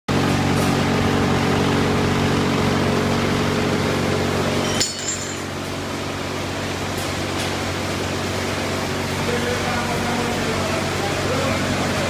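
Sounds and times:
sorting machine humming: 0.1s - 12.0s.

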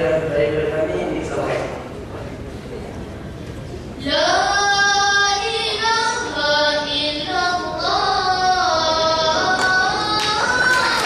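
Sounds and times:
boys singing into microphones: 4.0s - 11.0s.

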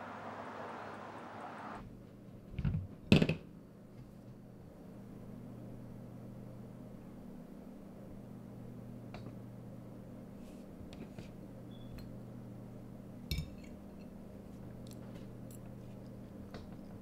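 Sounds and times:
spoon clinking against dish: 13.3s - 14.2s.

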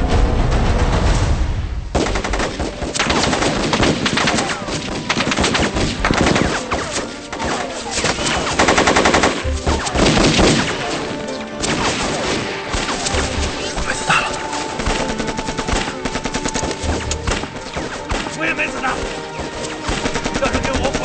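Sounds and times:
single gunshots: 1.9s - 13.8s
automatic gunfire bursts: 2.0s - 11.0s, 14.7s - 18.4s, 19.0s - 21.0s.

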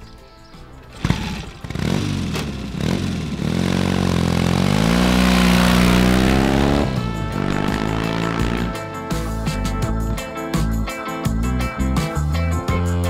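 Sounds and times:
motorcycle engine revving: 0.9s - 9.9s
music with strummed guitar: 6.0s - 13.0s.

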